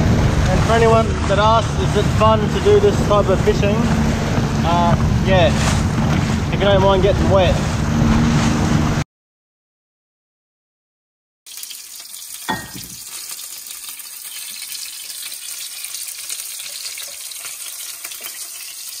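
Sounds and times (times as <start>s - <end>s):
fish sizzling in frying pan: 11.5s - 19.0s.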